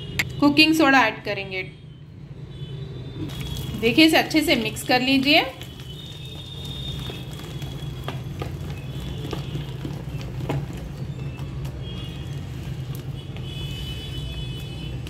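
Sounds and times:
hand beating wet batter: 3.3s - 15.0s.

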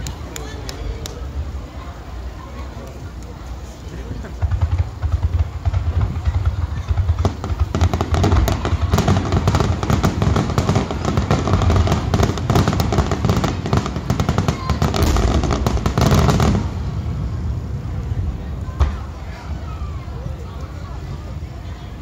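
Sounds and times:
fireworks crackling: 0.0s - 22.0s
fireworks booming: 4.0s - 20.0s.

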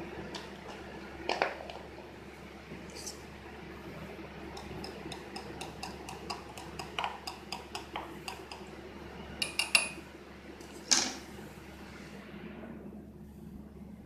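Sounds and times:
stirrer clinking glass bowl: 4.5s - 8.7s.

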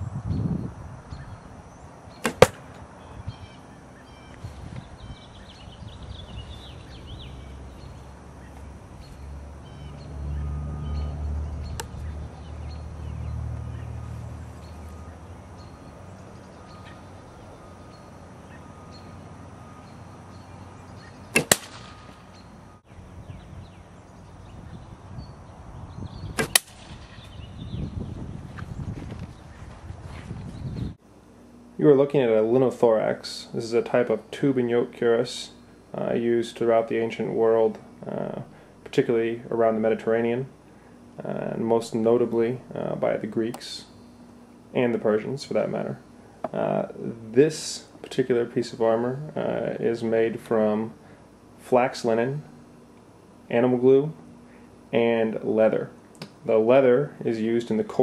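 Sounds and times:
arrows striking armour: 2.2s - 2.7s, 21.3s - 22.2s, 26.4s - 27.0s.

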